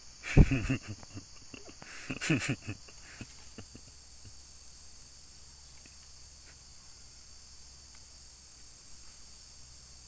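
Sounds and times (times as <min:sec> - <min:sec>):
insect chorus: 0:00.0 - 0:10.0
faint clicks: 0:05.7 - 0:06.6.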